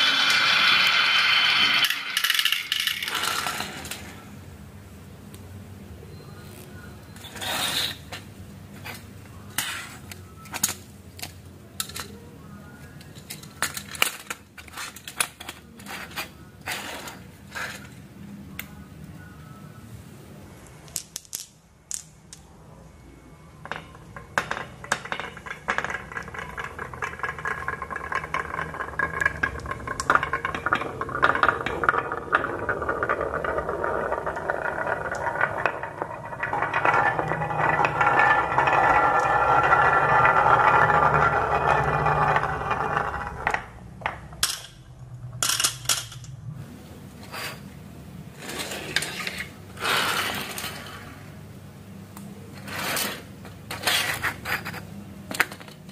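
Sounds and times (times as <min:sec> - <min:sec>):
marbles clicking: 0:00.0 - 0:04.2, 0:23.7 - 0:46.3
marbles rolling on wooden tracks: 0:00.0 - 0:04.4, 0:23.6 - 0:46.1, 0:48.4 - 0:51.3, 0:52.6 - 0:55.9.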